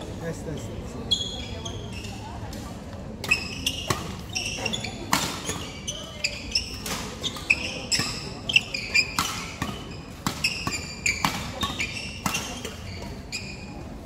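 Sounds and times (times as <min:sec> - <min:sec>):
shoes squeaking on floor: 0:00.5 - 0:02.4, 0:03.3 - 0:14.0
rackets striking shuttlecocks: 0:06.6 - 0:13.2.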